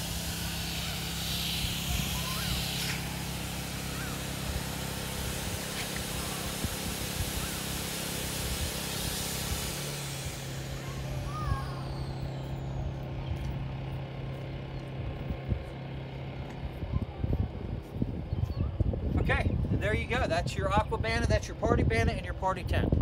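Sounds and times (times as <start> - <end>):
rush of air: 0.0 - 13.0
air pump motor hum: 0.0 - 23.0.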